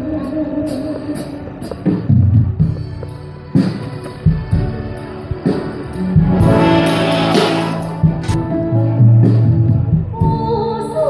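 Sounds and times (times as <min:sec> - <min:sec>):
live band playing instrumental: 0:00.2 - 0:10.3
drums and cymbals: 0:00.7 - 0:10.8
held bass notes: 0:06.0 - 0:08.5.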